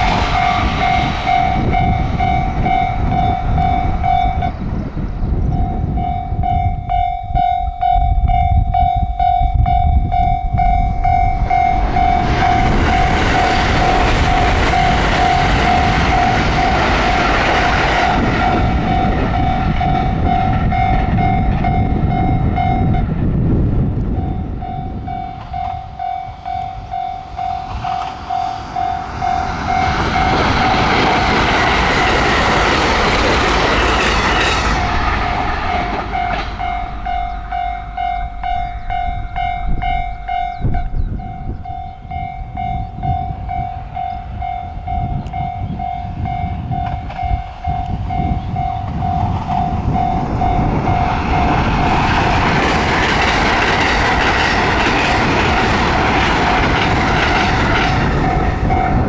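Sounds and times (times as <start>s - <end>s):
train wheels clickety-clack: 0.0s - 4.5s, 11.4s - 23.1s, 24.0s - 37.7s, 44.9s - 59.0s
level crossing warning bell ringing: 0.0s - 4.6s, 5.5s - 23.1s, 24.1s - 59.0s
train wheels rumbling on rails: 0.0s - 59.0s.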